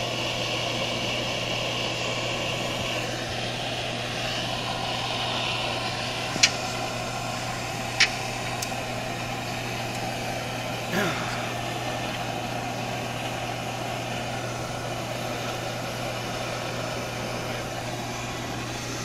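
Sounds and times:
gas torch hissing: 0:00.0 - 0:19.0
sharp clicks: 0:06.4 - 0:06.7, 0:07.9 - 0:08.8.

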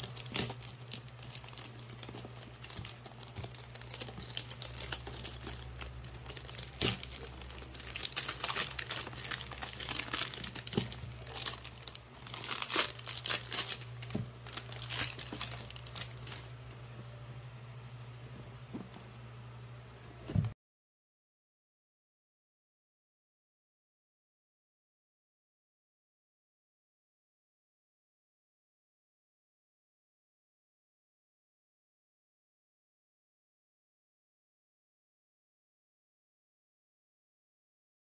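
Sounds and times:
plastic wrapping crinkling and tearing: 0:00.0 - 0:16.6
faint low hum: 0:00.0 - 0:20.6.

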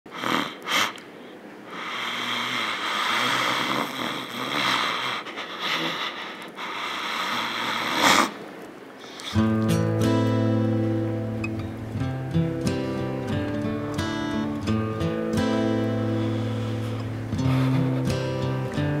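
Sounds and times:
loud breath sounds: 0:00.1 - 0:08.4, 0:09.0 - 0:09.5, 0:15.7 - 0:19.0
man snoring: 0:01.8 - 0:05.2.

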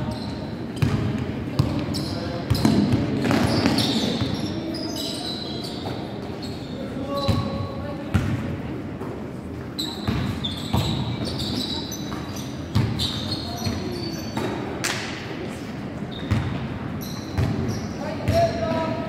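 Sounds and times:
sneakers squeaking: 0:00.0 - 0:15.2, 0:16.0 - 0:19.0
players' voices: 0:17.5 - 0:19.0.

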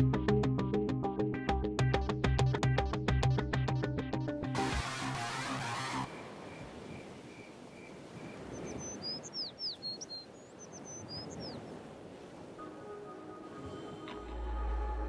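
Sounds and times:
bird chirping: 0:06.1 - 0:11.6.

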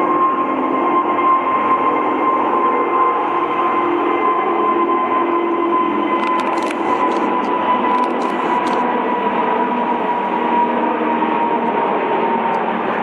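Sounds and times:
jet engines roaring with whine: 0:00.0 - 0:13.0.

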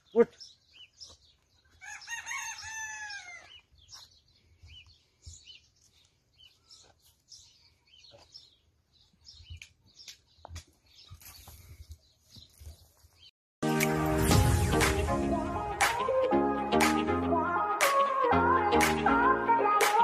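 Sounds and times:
small birds chirping: 0:00.0 - 0:13.3
rooster crowing: 0:01.8 - 0:03.5.

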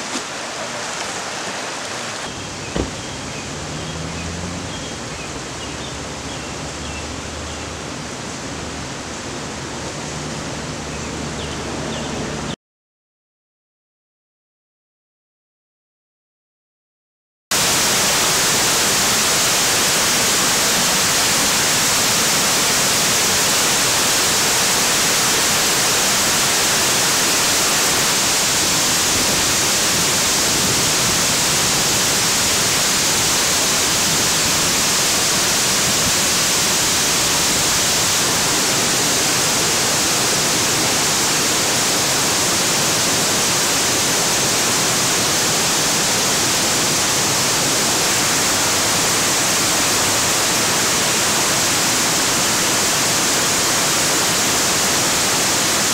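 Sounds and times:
rushing white water: 0:00.0 - 0:12.5, 0:17.5 - 0:55.9.

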